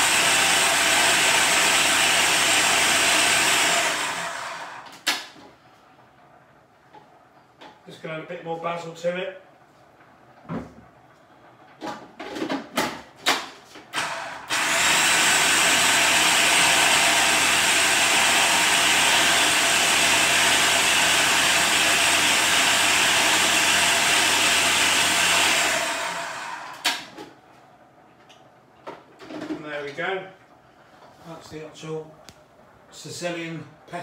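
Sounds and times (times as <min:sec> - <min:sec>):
food processor running: 0:00.0 - 0:05.0, 0:14.0 - 0:27.1.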